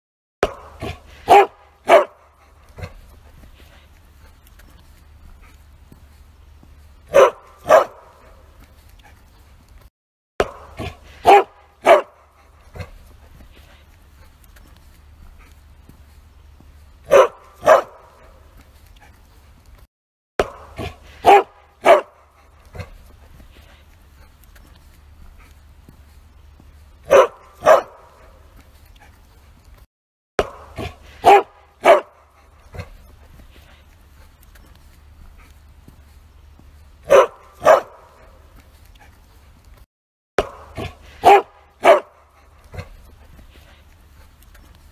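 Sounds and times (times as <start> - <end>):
dog barking loudly: 0.4 - 3.0, 7.1 - 8.4, 10.4 - 13.0, 17.1 - 18.4, 20.4 - 22.9, 27.0 - 28.4, 30.4 - 33.0, 37.0 - 38.4, 40.4 - 42.9.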